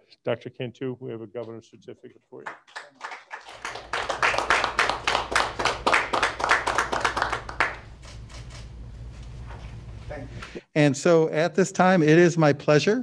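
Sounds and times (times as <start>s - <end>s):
small group applauding: 2.4s - 8.1s.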